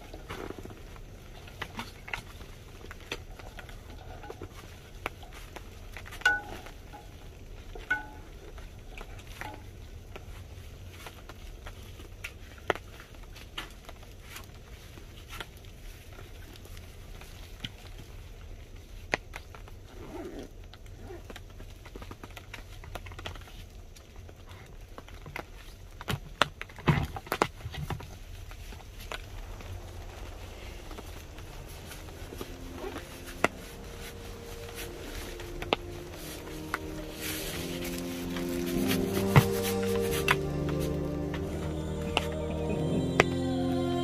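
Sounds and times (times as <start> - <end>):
low steady rumble: 28.1 - 44.0.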